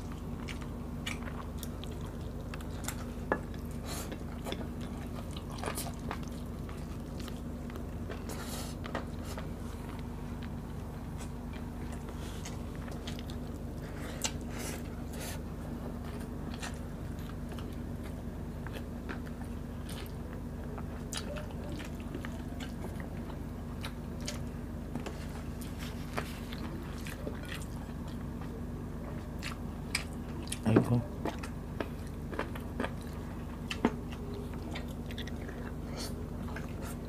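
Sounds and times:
people chewing: 0.0s - 37.0s
steady low hum: 0.0s - 37.0s.

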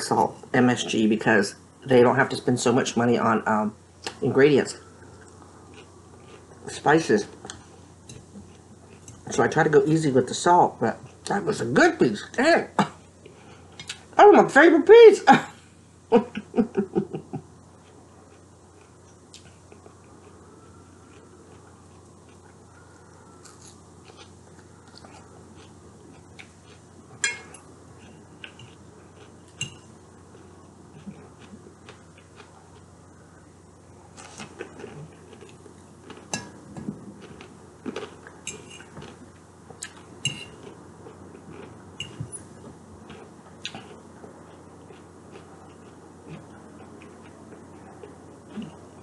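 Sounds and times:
quiet chewing: 4.8s - 9.2s, 17.6s - 33.5s, 34.1s - 49.0s.

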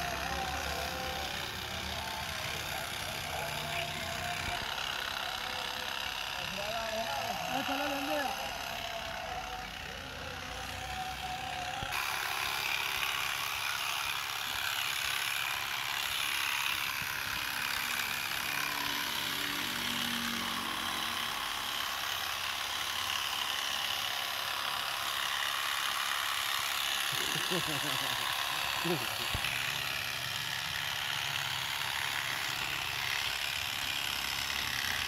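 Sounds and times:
electric hair clippers buzzing: 0.0s - 35.0s.

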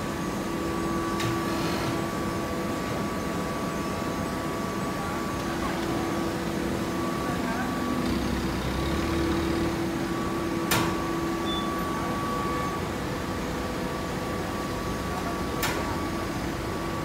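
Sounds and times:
hay baler machine hum: 4.6s - 15.4s.

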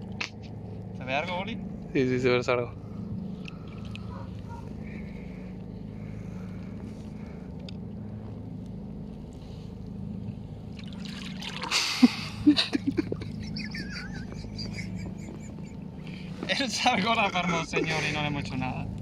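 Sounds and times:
steady low hum: 0.0s - 19.0s
water splashing: 10.7s - 12.2s.

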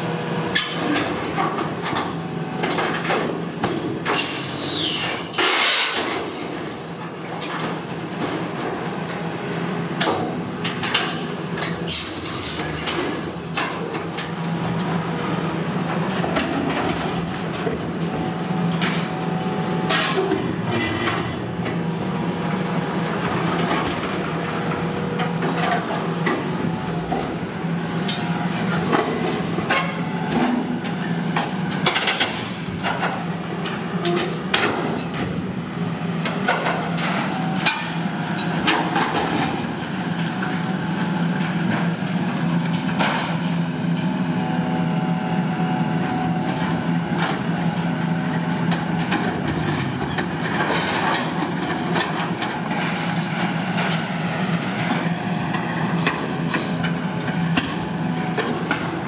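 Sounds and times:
excavator engine running: 12.6s - 59.0s.

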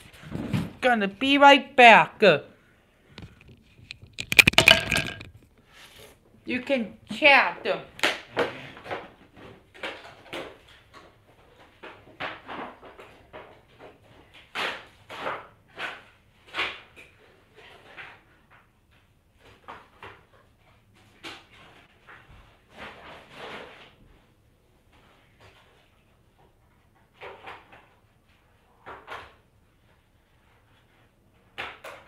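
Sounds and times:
knocks and clatter: 3.2s - 5.5s.

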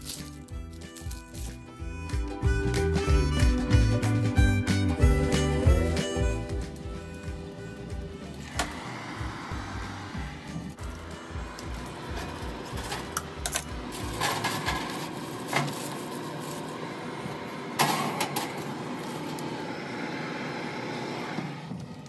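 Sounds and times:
foil rustling: 0.0s - 2.3s, 13.9s - 16.8s
steady background hum: 3.8s - 22.0s
metal tray clattering: 12.2s - 15.9s.

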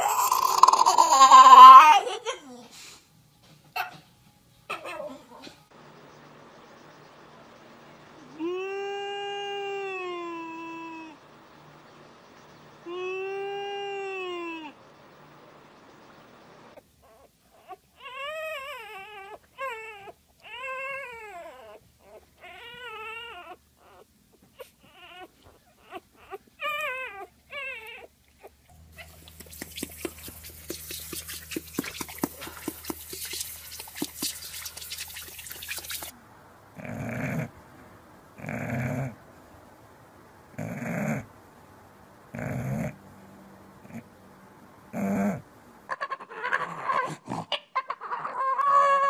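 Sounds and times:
dog whining: 0.0s - 2.2s, 4.7s - 5.7s, 16.7s - 36.1s, 45.0s - 49.0s
low hum: 5.3s - 16.8s
hissing spray: 29.0s - 36.2s
dog snoring: 36.8s - 37.5s, 38.4s - 39.2s, 40.6s - 41.3s, 42.3s - 43.0s, 44.9s - 45.4s.

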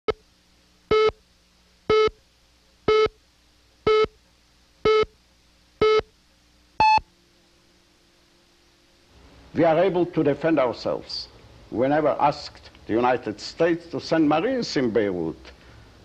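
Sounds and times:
short buzzy countdown beeps: 0.9s - 1.2s, 1.9s - 2.2s, 2.9s - 3.2s, 3.9s - 4.2s, 4.8s - 5.2s, 5.8s - 6.1s, 6.8s - 7.0s.

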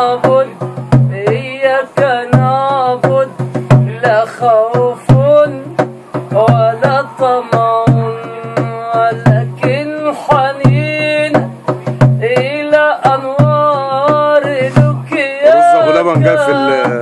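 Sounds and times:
hand drumming on plastic jug: 0.0s - 17.0s
man singing held notes: 12.3s - 17.0s.

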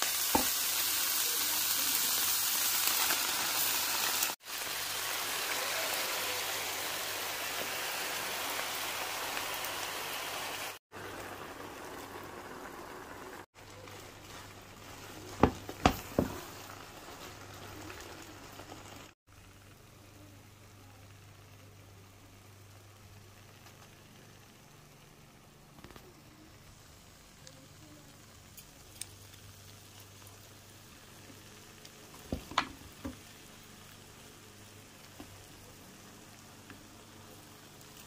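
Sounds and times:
noodles sizzling in frying pan: 0.0s - 38.0s
wooden spatula knocking pan: 15.3s - 16.5s.

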